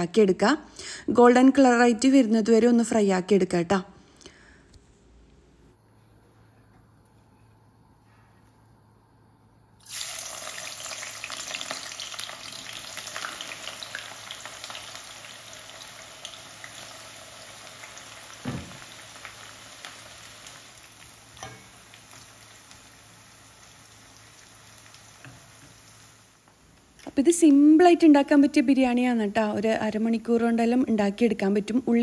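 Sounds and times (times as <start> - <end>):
onions sizzling in hot oil: 9.8 - 27.0.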